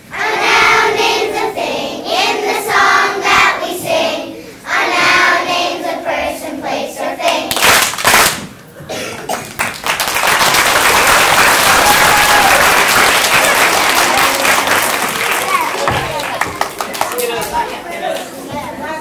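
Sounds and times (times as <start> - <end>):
children's choir singing: 0.0 - 7.6
audience applause: 9.3 - 17.6.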